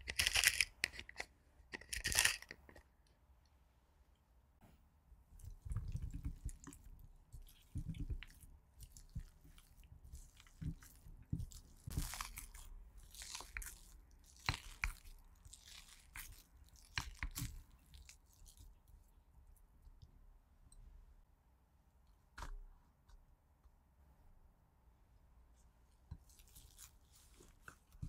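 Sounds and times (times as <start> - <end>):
potatoes being mashed: 5.4 - 18.5.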